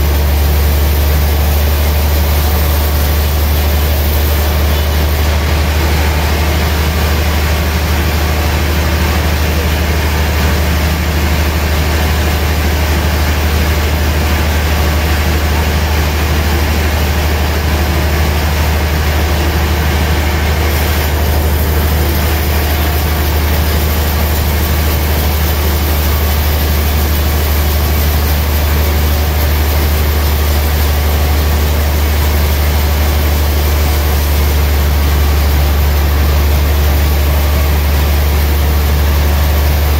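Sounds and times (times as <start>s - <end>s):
band saw cutting wood: 20.5s - 37.2s.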